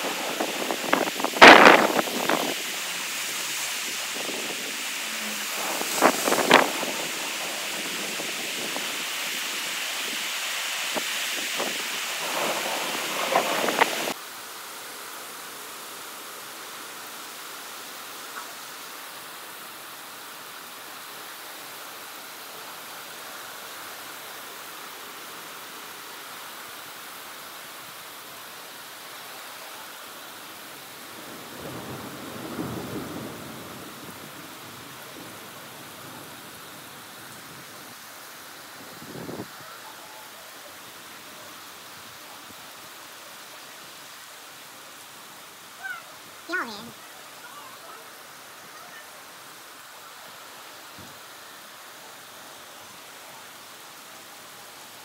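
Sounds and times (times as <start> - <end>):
thunder rumbling: 0.0 - 9.1, 11.6 - 14.2, 31.4 - 36.4
heavy rain: 0.0 - 55.0.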